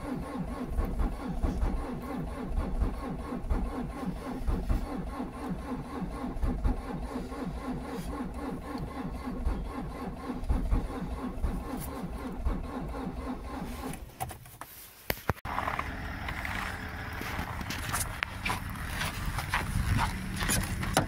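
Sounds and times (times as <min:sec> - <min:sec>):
starter motor cranking engine: 0:00.0 - 0:14.2.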